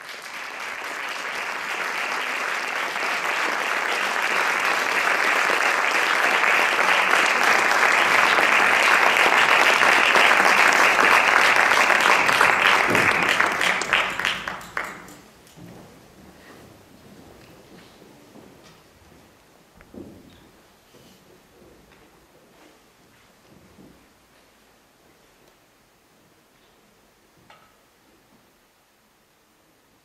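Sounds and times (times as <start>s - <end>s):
audience applauding: 0.0s - 15.3s.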